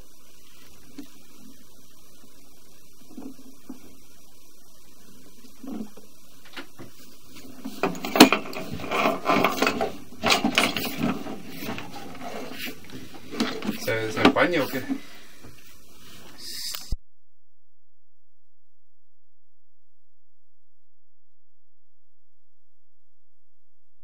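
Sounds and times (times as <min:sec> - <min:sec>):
steady low hum: 0:00.0 - 0:17.0
camera cable knocking and scraping in pipe: 0:05.6 - 0:14.4.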